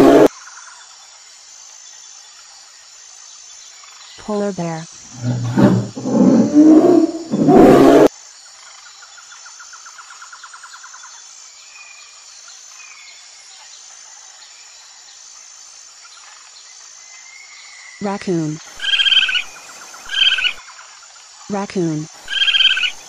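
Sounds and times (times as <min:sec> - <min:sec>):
polar bear growl: 0:05.1 - 0:08.1.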